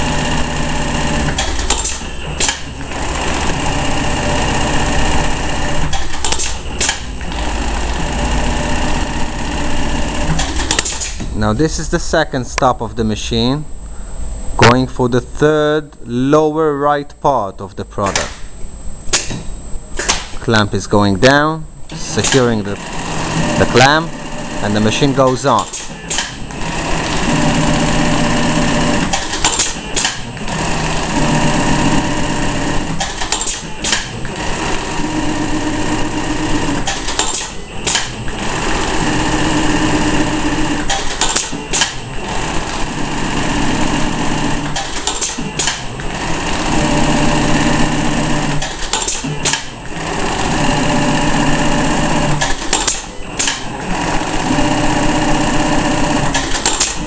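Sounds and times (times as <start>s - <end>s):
sewing machine stitching: 0.0s - 11.3s, 21.9s - 57.0s.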